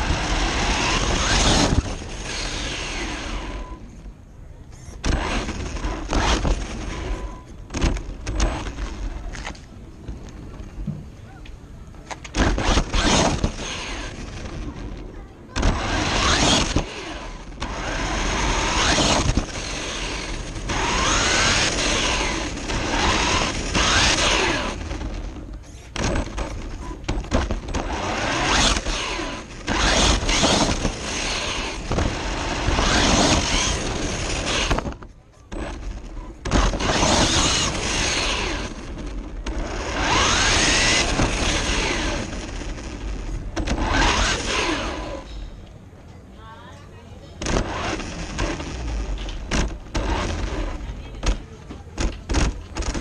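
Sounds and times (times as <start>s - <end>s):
electric motor whining: 0.0s - 4.1s, 12.3s - 45.4s
tyres and wind noise: 0.0s - 53.0s.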